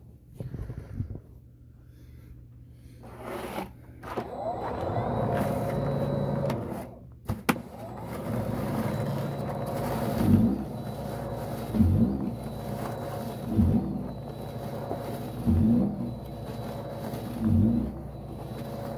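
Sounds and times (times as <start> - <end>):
electric motor whine: 4.2 - 7.0, 7.7 - 18.9.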